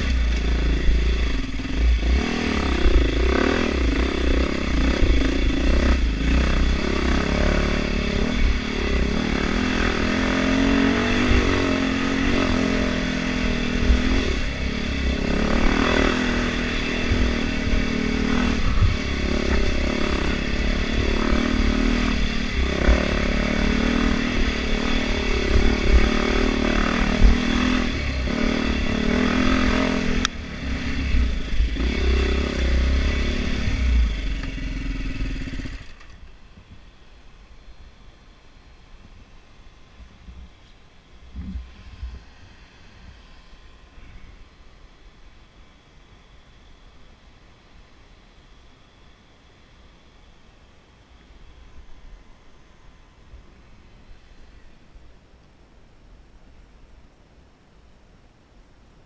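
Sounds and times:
wind rumble on microphone: 0.0s - 34.3s, 41.2s - 44.3s
dirt bike engine revving: 0.0s - 36.2s.

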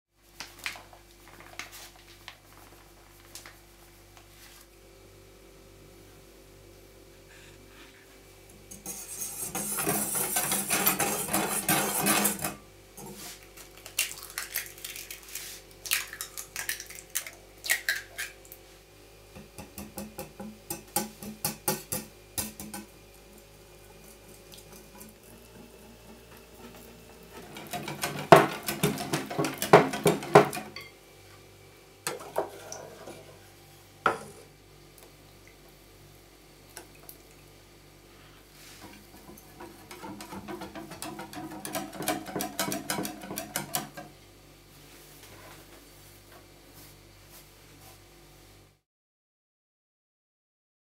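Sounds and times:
whisk beating in glass bowl: 8.8s - 12.6s, 24.7s - 30.9s, 39.1s - 44.0s.

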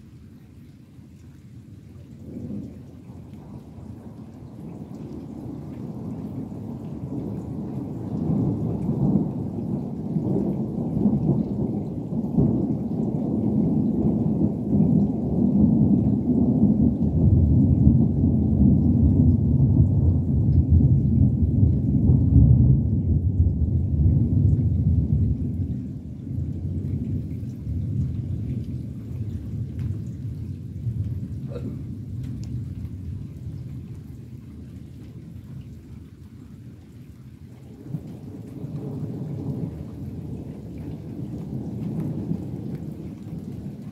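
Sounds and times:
distant thunder rumble: 2.1s - 35.9s, 37.6s - 43.9s.

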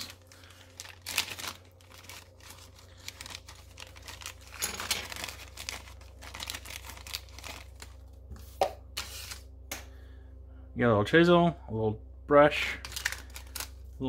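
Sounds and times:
plastic bag crinkling and tearing: 0.0s - 8.2s, 12.8s - 13.9s.

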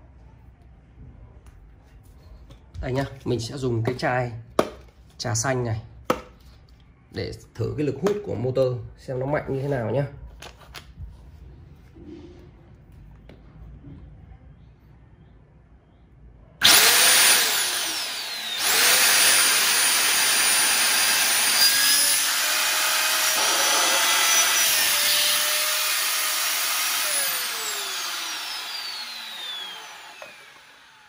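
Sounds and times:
vacuum cleaner motor whine: 16.6s - 31.0s.

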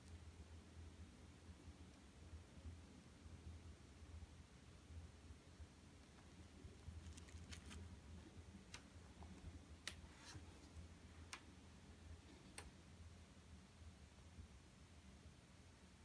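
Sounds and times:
low steady hum: 0.0s - 16.0s
book being handled: 7.0s - 7.9s, 9.9s - 10.8s.

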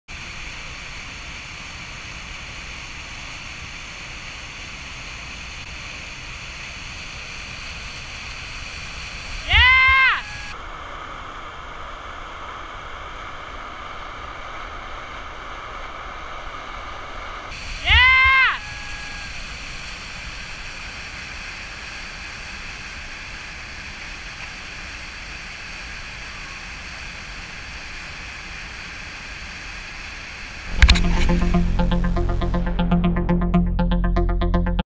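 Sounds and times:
person shouting: 9.4s - 10.5s, 17.8s - 19.3s.

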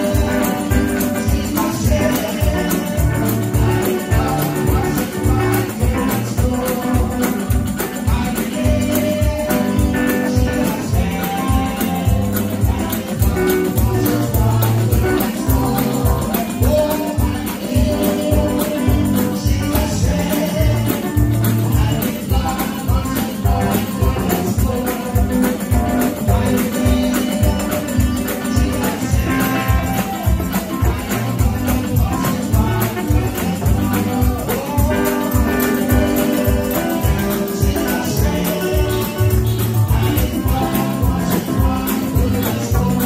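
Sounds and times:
congregation voices: 0.0s - 43.0s
electric guitar: 0.0s - 43.0s
keyboard: 0.0s - 43.0s
person singing into microphone: 0.0s - 43.0s
tambourine: 0.0s - 43.0s.

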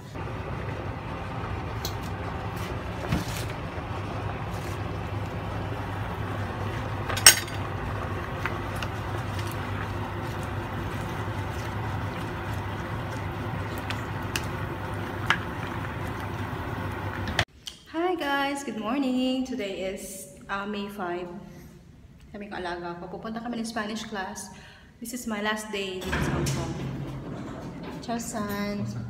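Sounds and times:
low hum: 0.0s - 17.5s, 26.0s - 29.0s.

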